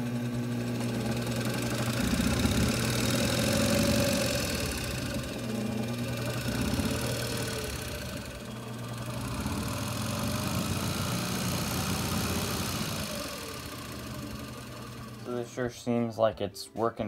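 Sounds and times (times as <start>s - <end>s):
electric motor humming: 0.0s - 16.0s.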